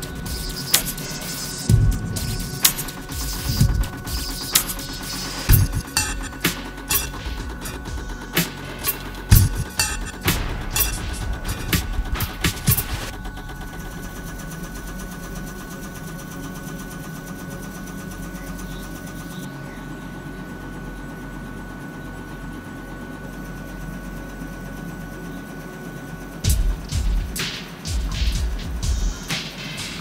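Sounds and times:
high hiss: 0:00.0 - 0:16.9
thin constant whine: 0:00.0 - 0:30.0
stamping press running: 0:01.7 - 0:13.1.

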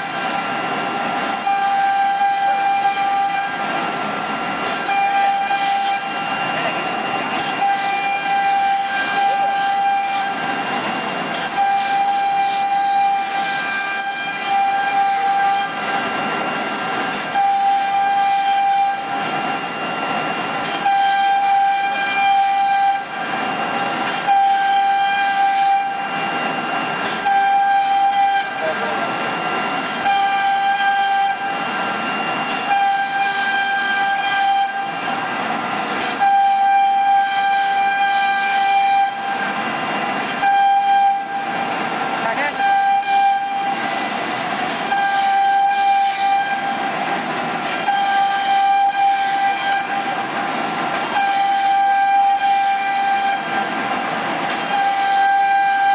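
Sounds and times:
router spindle whining: 0:00.0 - 0:37.1.

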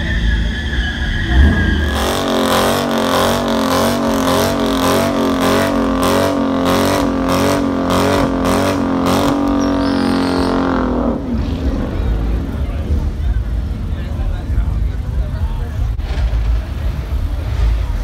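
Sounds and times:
engine crackles: 0:00.0 - 0:18.0
car engine at high revs: 0:01.2 - 0:13.7.

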